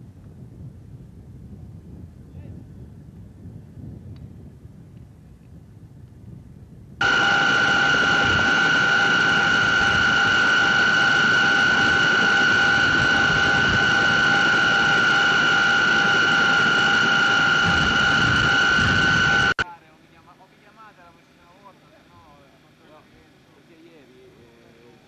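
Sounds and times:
helicopter turbine whine: 7.0 - 25.0.

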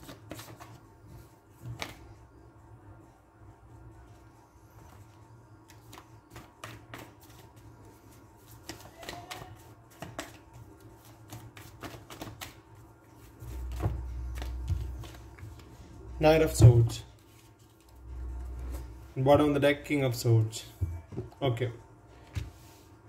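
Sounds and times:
cards being shuffled: 0.0 - 0.8, 5.7 - 15.8, 17.1 - 19.0.

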